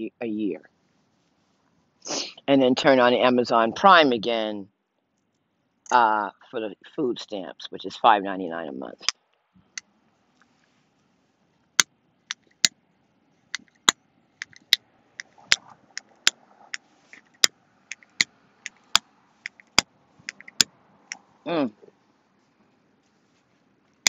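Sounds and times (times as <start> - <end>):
distant traffic hum: 11.6 - 24.0
sharp irregular clicks and taps: 13.5 - 20.7.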